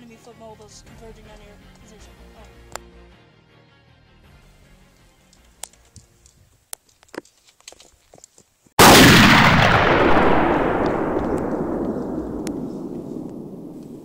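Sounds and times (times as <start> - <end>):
loud explosion rumble: 8.8 - 14.0.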